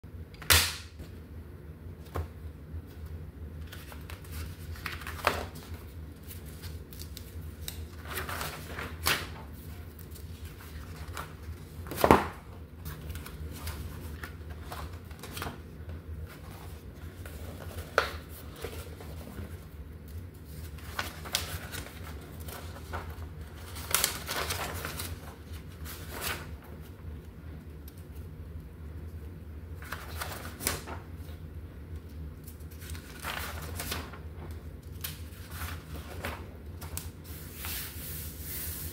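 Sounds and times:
steady low hum: 0.1 - 38.9
pages turning and rustling: 2.0 - 27.0, 29.8 - 31.4, 32.0 - 38.9.

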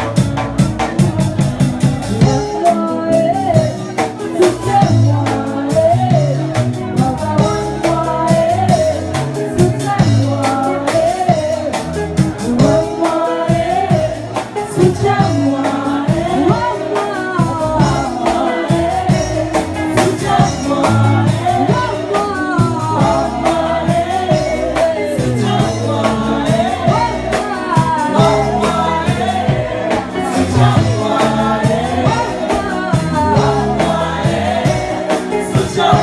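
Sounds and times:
drum kit: 0.0 - 36.0
woman singing into a microphone: 2.1 - 36.0
backing choir singing: 7.4 - 36.0.

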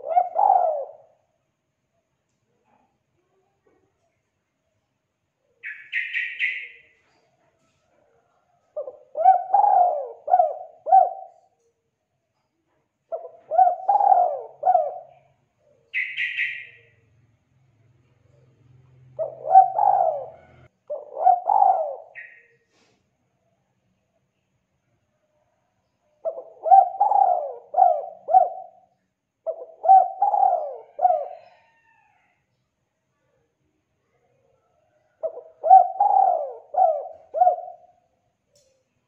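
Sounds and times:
dove cooing: 0.0 - 1.2, 8.7 - 11.6, 13.1 - 16.8, 19.1 - 22.4, 26.2 - 32.2, 34.9 - 38.1
high chirping: 5.6 - 7.0, 15.9 - 17.0.

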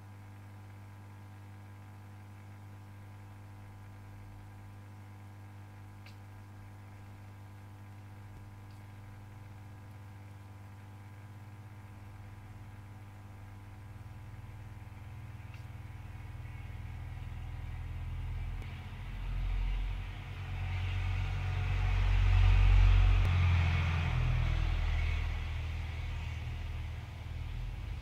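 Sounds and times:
steady low hum: 0.0 - 28.0
deep rumble: 14.5 - 28.0.

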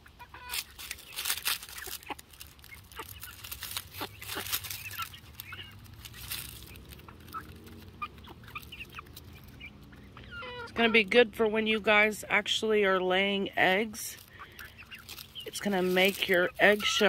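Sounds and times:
hens clucking: 0.0 - 17.0
beaks tapping on concrete: 0.8 - 10.3, 14.0 - 17.0.

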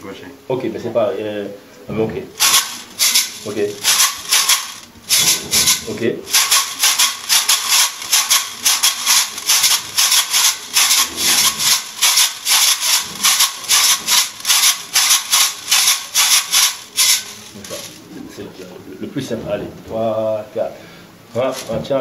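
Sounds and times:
shakers shaking: 2.4 - 18.1, 21.4 - 21.8.

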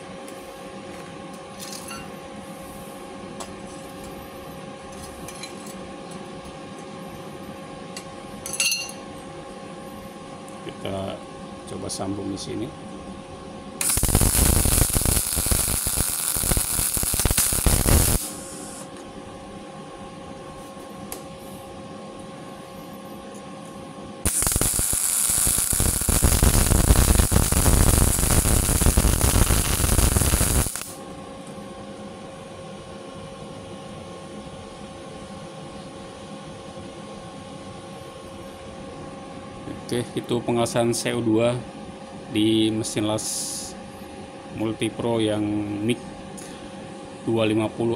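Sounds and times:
welder humming: 0.0 - 31.6
welding arc crackle: 13.8 - 18.9, 24.2 - 31.0.

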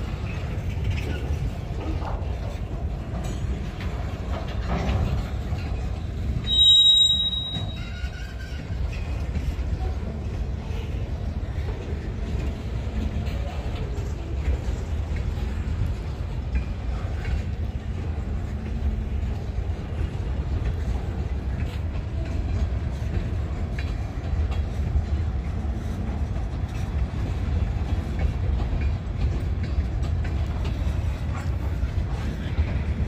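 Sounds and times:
train cars rumbling past: 0.0 - 33.0
train wheels clicking: 0.0 - 33.0.

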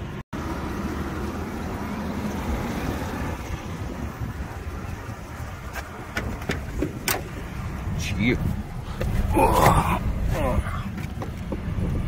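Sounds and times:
wind rumbling on microphone: 2.5 - 12.0.

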